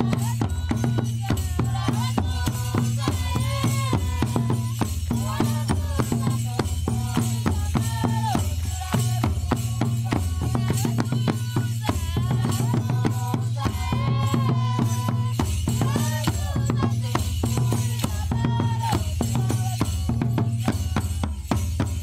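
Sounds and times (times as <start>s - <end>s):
people singing: 0.0s - 21.6s
hand drums: 0.0s - 22.0s.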